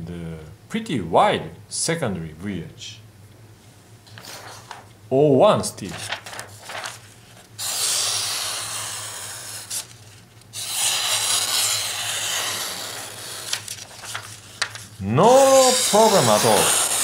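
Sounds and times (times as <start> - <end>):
knife slicing paper: 5.9 - 17.0.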